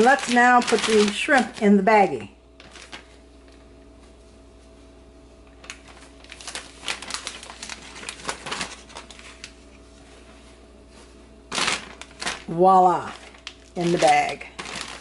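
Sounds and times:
plastic bag crinkling: 0:00.0 - 0:03.6, 0:05.4 - 0:09.7, 0:11.5 - 0:15.0.

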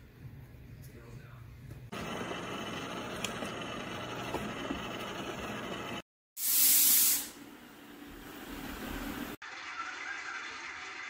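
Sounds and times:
robot vacuum running: 0:01.9 - 0:06.0
loud hiss: 0:06.4 - 0:07.4.

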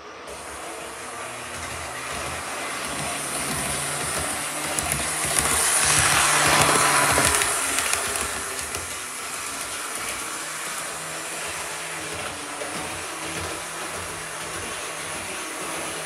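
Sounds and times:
model locomotive motor humming: 0:00.0 - 0:16.0
wheels rolling on rails: 0:00.2 - 0:16.0.

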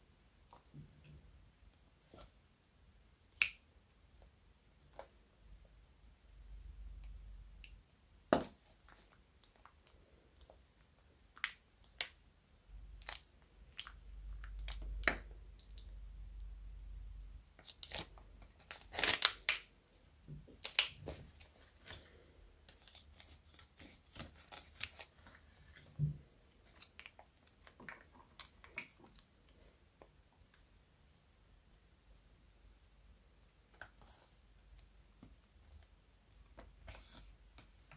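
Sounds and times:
plastic piping bag crinkling: 0:17.6 - 0:19.7.

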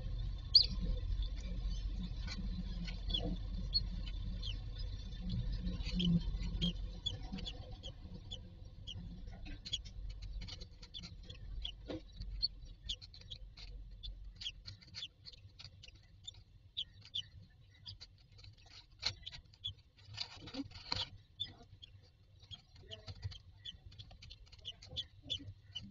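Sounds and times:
chicks cheeping: 0:00.0 - 0:25.9.

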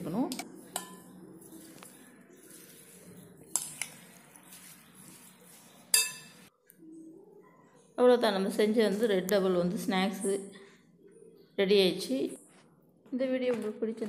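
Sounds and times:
metal spoon clinking glass bowl: 0:00.2 - 0:01.7, 0:03.5 - 0:04.6, 0:05.9 - 0:06.5.

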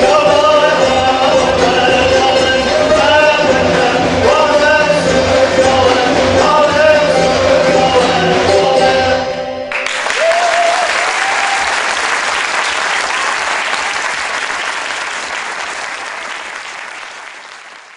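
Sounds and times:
traditional ensemble playing: 0:00.0 - 0:09.7
audience applause: 0:09.7 - 0:17.9.

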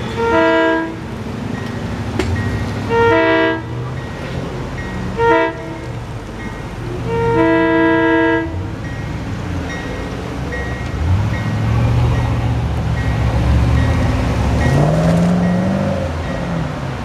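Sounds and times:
train air horn chord: 0:00.0 - 0:01.0, 0:02.9 - 0:03.8, 0:05.2 - 0:05.9, 0:07.1 - 0:08.6.

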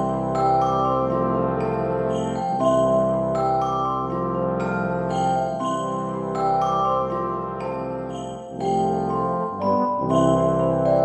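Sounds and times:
slow melody over held chords: 0:00.0 - 0:11.0.

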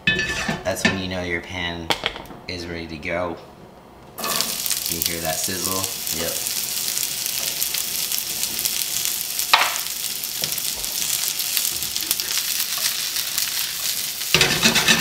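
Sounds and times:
vegetables sizzling in oil: 0:04.2 - 0:15.0.

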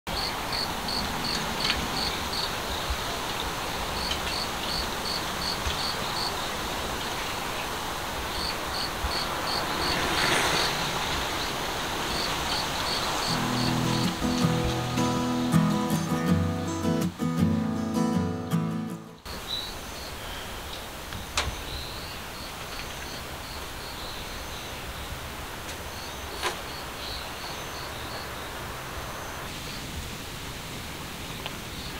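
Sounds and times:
steady background hiss: 0:00.1 - 0:31.9
soft rush of noise: 0:00.3 - 0:17.5
insect chirping in pulses: 0:03.7 - 0:06.6, 0:08.2 - 0:15.9
strummed acoustic guitar music: 0:13.2 - 0:19.3.

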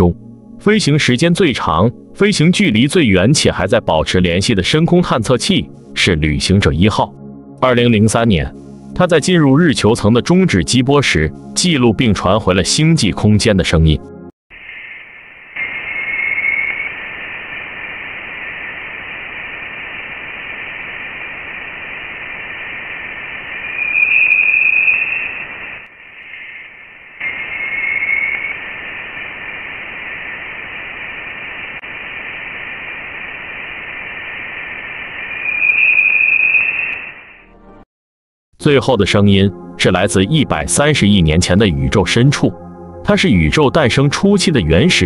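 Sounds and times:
radio static hiss: 0:14.5 - 0:37.5
high whistling band: 0:14.7 - 0:17.0, 0:23.8 - 0:25.6, 0:27.2 - 0:28.6, 0:35.4 - 0:37.5.

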